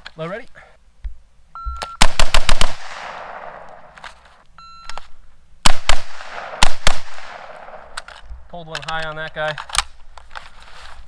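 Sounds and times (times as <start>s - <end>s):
short beep: 1.6s - 2.0s, 4.6s - 5.1s
rifle shots with echo: 2.0s - 4.0s, 5.6s - 8.1s.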